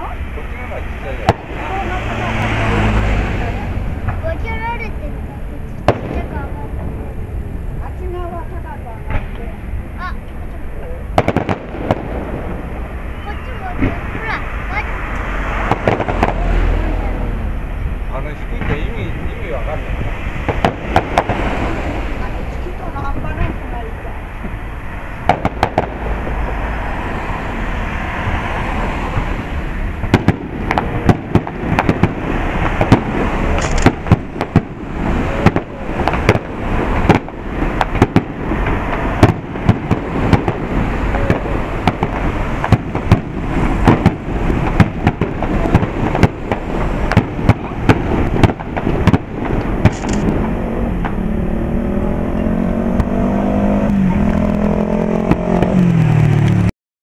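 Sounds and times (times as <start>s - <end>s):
fireworks bangs and crackles: 0.0s - 51.3s, 52.9s - 56.7s
steady background din: 0.0s - 56.4s
rising whine: 49.4s - 56.7s.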